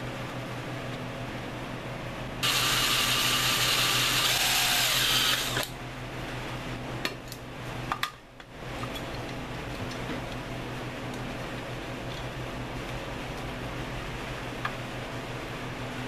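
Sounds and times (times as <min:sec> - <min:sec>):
power tool whirring: 0:02.4 - 0:05.7.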